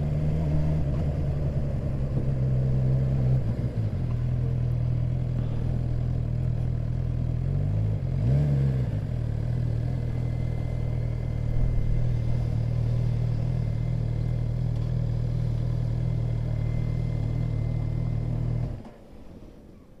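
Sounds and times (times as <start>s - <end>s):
motorcycle engine idling: 9.0s - 18.6s.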